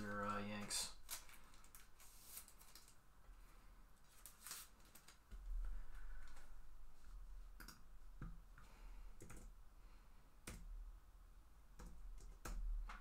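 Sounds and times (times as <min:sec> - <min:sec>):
low steady hum: 0:00.0 - 0:13.0
computer keys and mouse clicking: 0:07.6 - 0:07.8, 0:09.2 - 0:09.6, 0:10.4 - 0:10.7.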